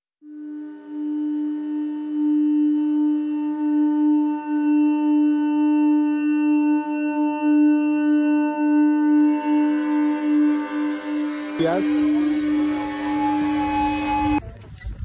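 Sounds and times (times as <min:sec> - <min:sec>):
held drone note: 0:00.2 - 0:14.4.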